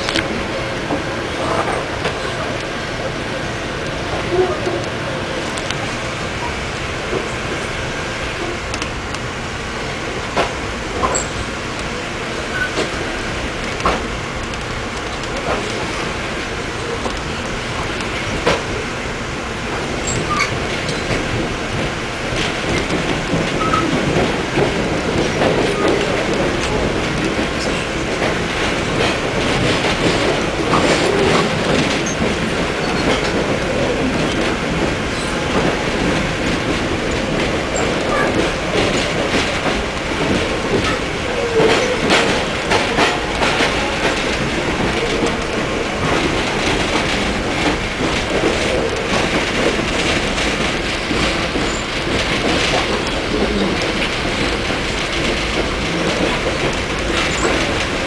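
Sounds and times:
train wheels rumbling on rail: 0.0 - 58.0
wheels clicking over rail joints: 10.2 - 58.0
wheel squeals: 23.6 - 24.0.

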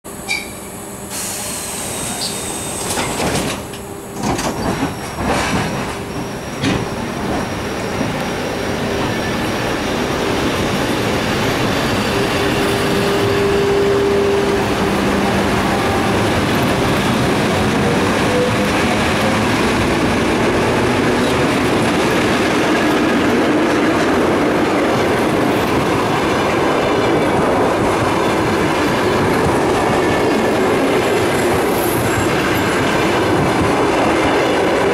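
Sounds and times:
train wheels rumbling on rails: 1.6 - 34.9
clickety-clack over rail joints: 2.8 - 8.3, 16.2 - 34.9.

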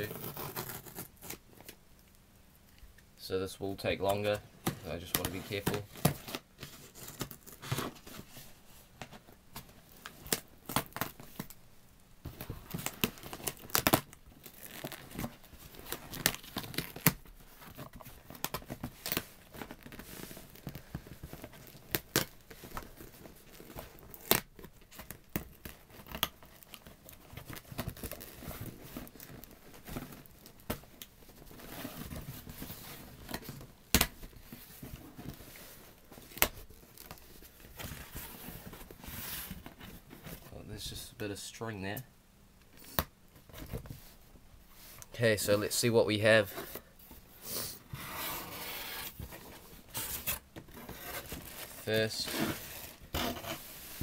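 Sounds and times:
tape peeling and tearing: 0.0 - 1.4, 12.8 - 17.2, 23.5 - 30.6.

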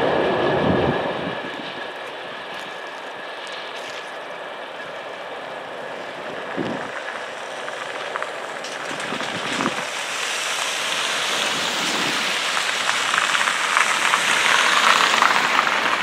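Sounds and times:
car tyres hissing on wet road: 5.1 - 16.0.

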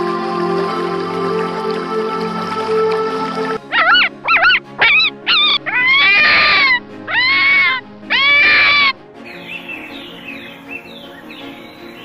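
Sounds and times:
background music: 0.0 - 12.0
high-pitched animal cries: 3.6 - 9.0
bird chirps: 3.8 - 12.0.

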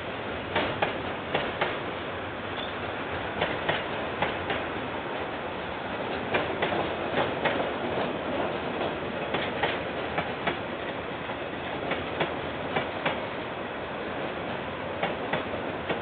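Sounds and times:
train wagons rumbling: 0.0 - 16.0
wheels clacking over rail joints: 2.6 - 5.4, 6.0 - 13.3.

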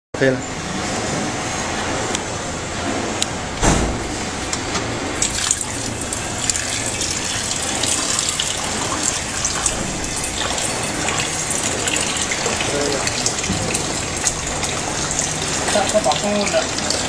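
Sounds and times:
thump: 3.6 - 4.2
water draining and splashing: 5.2 - 17.0.

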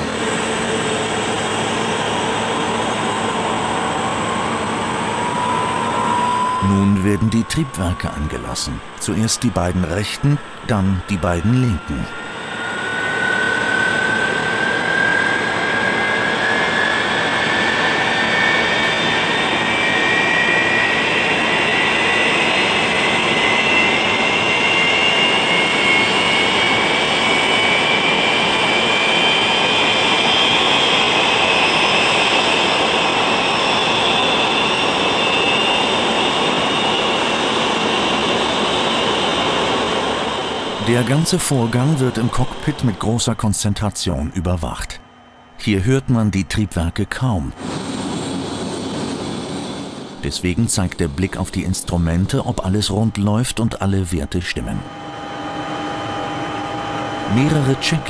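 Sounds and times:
jet engines spooling up: 0.0 - 58.0.

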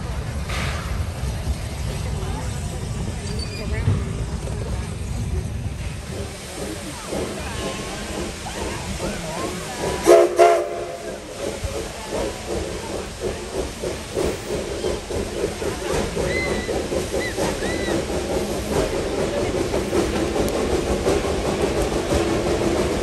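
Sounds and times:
steam hissing: 0.0 - 23.0
locomotive exhaust chuffs: 0.1 - 23.0
steam locomotive whistle: 10.0 - 11.1.

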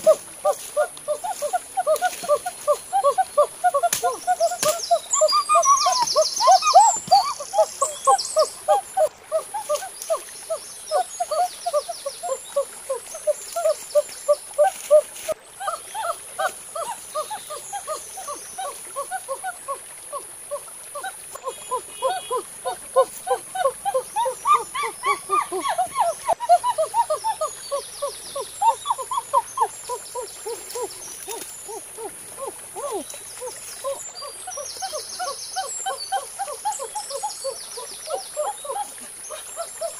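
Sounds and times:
insects droning: 0.0 - 39.9
birds calling in falling notes: 0.5 - 10.2.

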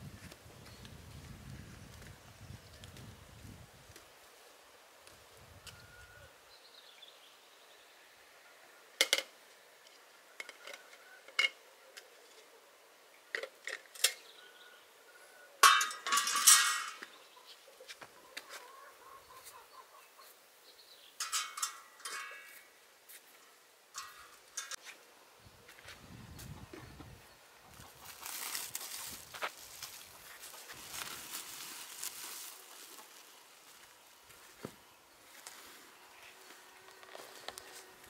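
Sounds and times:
metal clanks and clinks: 15.6 - 17.0, 21.2 - 22.6, 24.0 - 24.8
ringing metal clatter: 15.6 - 17.0, 21.2 - 22.6.

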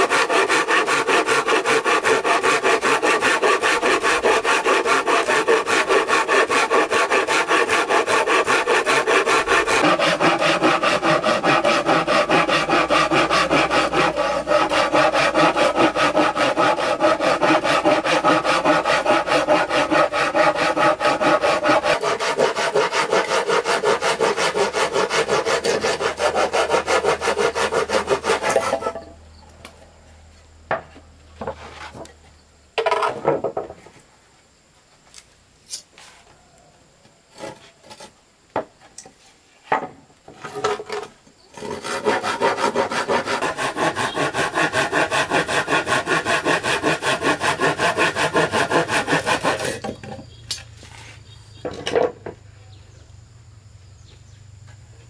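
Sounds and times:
hand saw cutting wood: 0.0 - 29.1, 40.4 - 50.1.

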